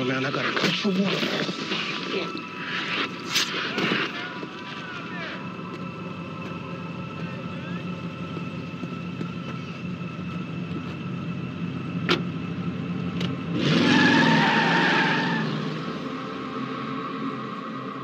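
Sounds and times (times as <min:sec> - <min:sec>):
car engine idling: 0:00.0 - 0:13.6
engine revving: 0:12.0 - 0:18.0
tyres squealing: 0:13.6 - 0:15.5.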